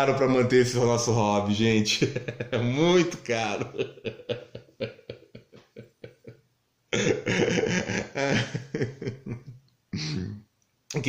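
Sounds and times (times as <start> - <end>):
man making breathy sounds: 7.0 - 8.8.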